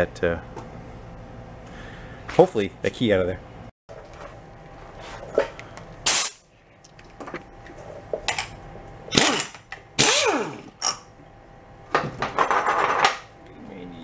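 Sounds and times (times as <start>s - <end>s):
pneumatic impact wrench hammering: 6.0s - 6.4s, 9.1s - 11.0s.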